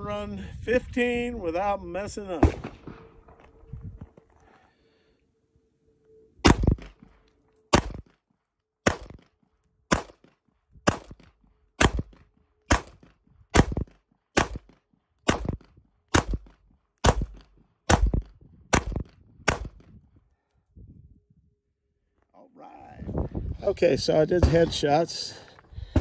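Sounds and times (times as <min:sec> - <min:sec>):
pistol shots: 0:06.4 - 0:08.1, 0:08.8 - 0:09.3, 0:09.9 - 0:10.3, 0:10.9 - 0:19.8.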